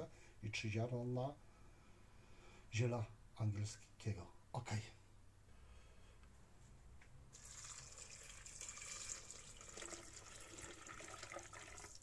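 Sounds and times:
water pouring into metal bowl: 7.4 - 12.0.

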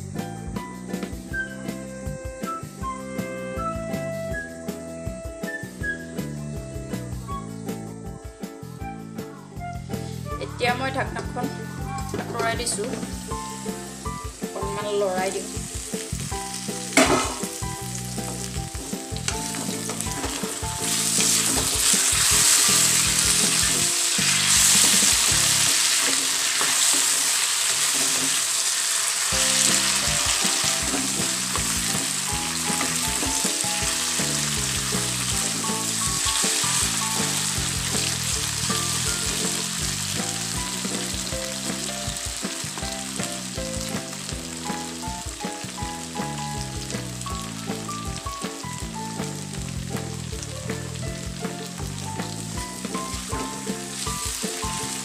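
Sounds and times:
potato sticks sizzling in oil: 9.8 - 55.0
wooden spatula turning food: 12.1 - 43.5.

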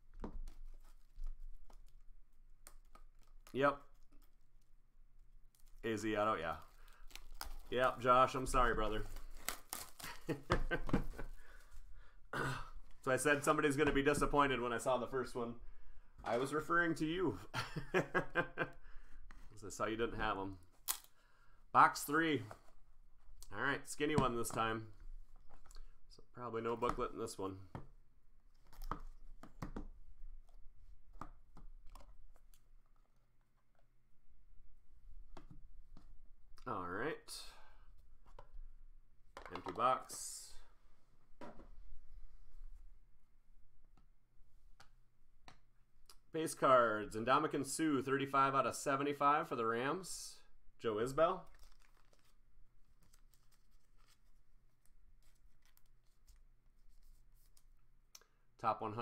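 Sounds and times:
trading card handled in fingers: 51.4 - 57.8.

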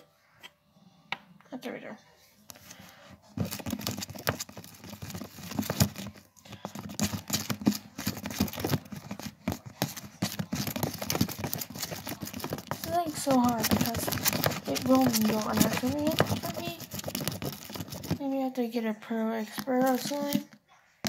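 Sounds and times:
hands squelching sticky slime: 3.4 - 18.2.

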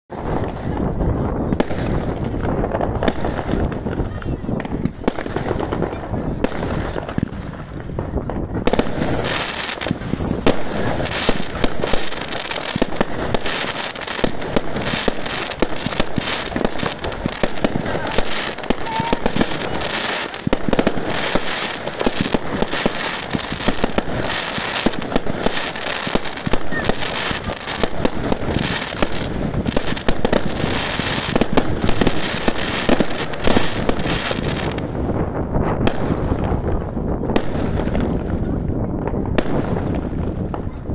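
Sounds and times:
fireworks launching and banging: 0.1 - 40.9
crackling pops: 1.5 - 35.0.

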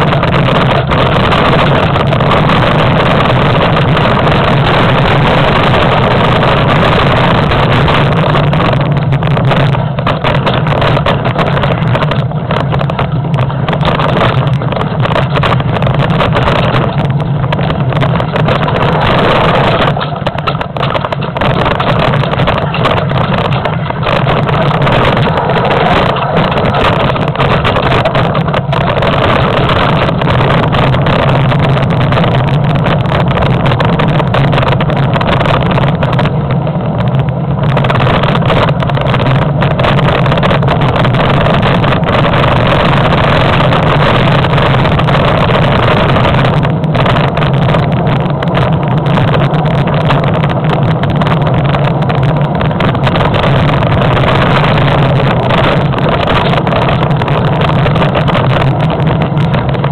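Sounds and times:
bike rattling and rumbling: 0.0 - 59.9
wind rushing on microphone: 0.0 - 59.9.

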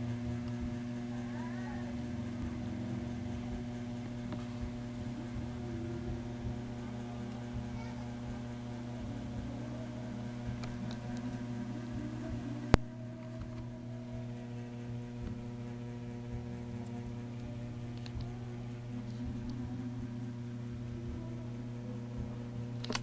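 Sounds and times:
steady electrical hum: 0.0 - 23.0
sharp click: 22.8 - 23.0.

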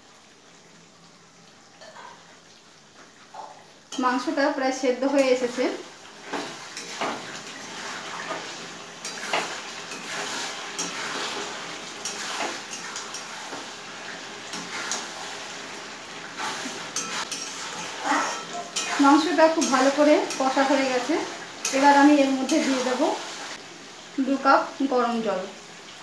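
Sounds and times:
frying sizzle: 0.0 - 26.0
metal spatula scraping wok: 5.2 - 13.8, 14.4 - 23.6.

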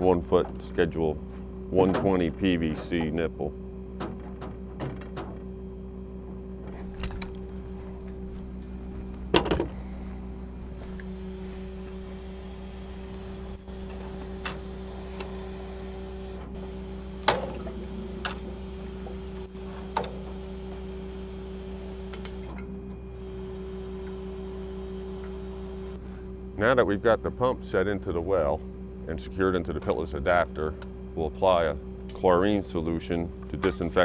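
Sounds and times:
steady machine hum: 0.0 - 34.0
metal and pipe clanks: 1.8 - 3.2.

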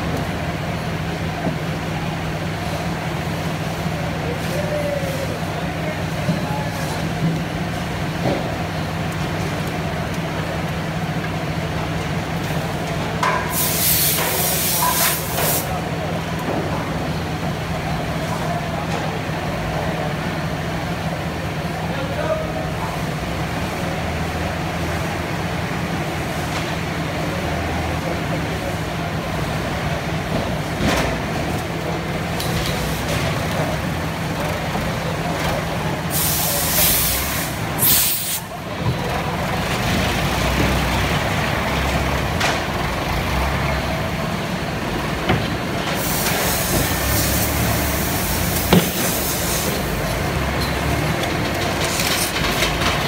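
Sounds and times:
factory plant noise: 0.0 - 53.0
loud hiss: 13.5 - 15.7, 36.1 - 38.5, 46.0 - 50.0.

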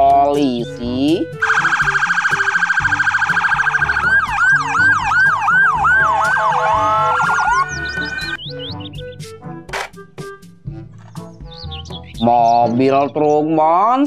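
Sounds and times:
emergency vehicle sirens: 1.4 - 8.4.

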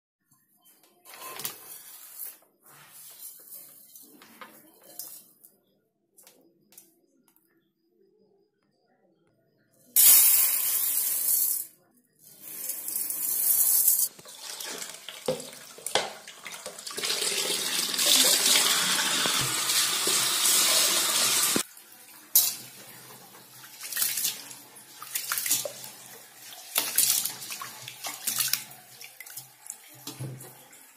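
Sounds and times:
tap water running into pot: 12.6 - 30.8.

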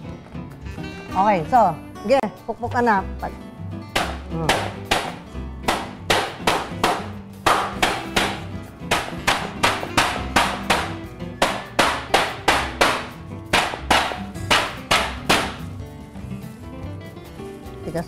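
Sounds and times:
background music: 0.0 - 18.0
meat pounder slapping on meat: 3.9 - 15.7.

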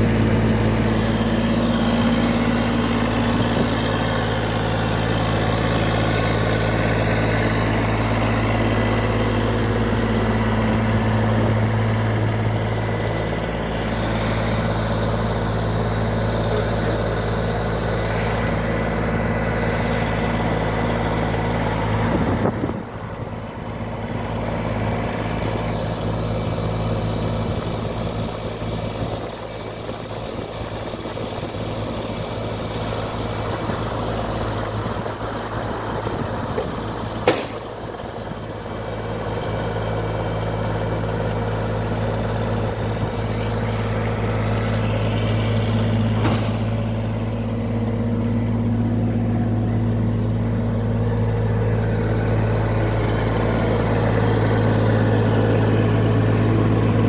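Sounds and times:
lawn tractor engine running: 0.0 - 57.0
sharp clunk: 36.6 - 37.8, 46.1 - 46.9
hydraulic lift: 43.3 - 49.2.

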